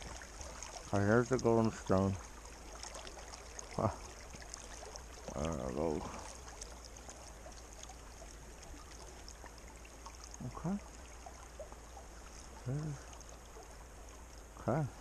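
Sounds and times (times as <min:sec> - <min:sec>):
creek water flowing: 0:00.0 - 0:15.0
wordless voice sounds: 0:12.6 - 0:13.1.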